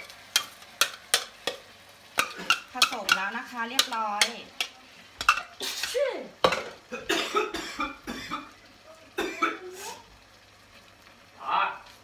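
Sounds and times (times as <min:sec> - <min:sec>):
spatula scraping frying pan: 0:00.0 - 0:06.8
light sizzle: 0:00.0 - 0:12.0
spatula knocking against pan: 0:00.3 - 0:05.5.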